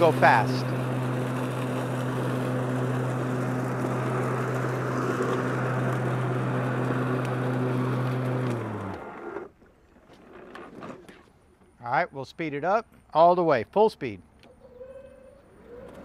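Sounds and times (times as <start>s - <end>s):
electric mower motor hum: 0.0s - 9.6s
blades cutting grass: 0.0s - 10.7s.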